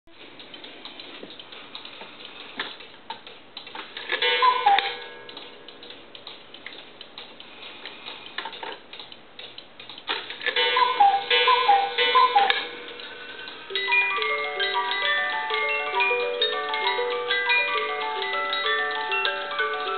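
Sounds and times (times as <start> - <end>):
clock ticking: 0.1 - 19.9
two-note cuckoo call: 10.6 - 12.7.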